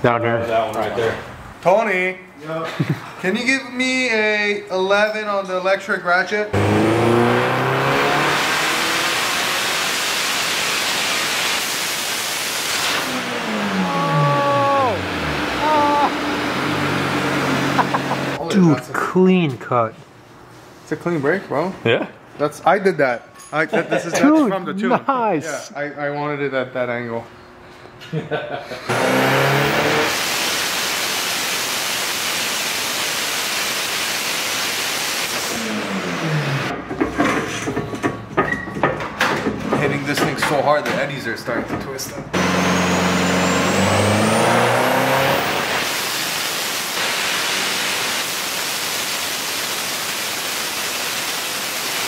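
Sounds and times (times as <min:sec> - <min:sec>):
car engine at full throttle: 0:06.6 - 0:18.4, 0:28.9 - 0:31.9, 0:35.2 - 0:36.8, 0:42.3 - 0:48.7
loud rushing hiss: 0:08.7 - 0:16.0, 0:29.2 - 0:35.6, 0:45.0 - 0:52.0.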